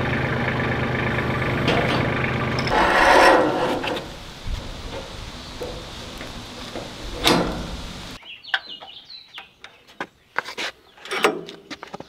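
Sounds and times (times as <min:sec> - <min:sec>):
loud metal clank: 0:01.5 - 0:08.2.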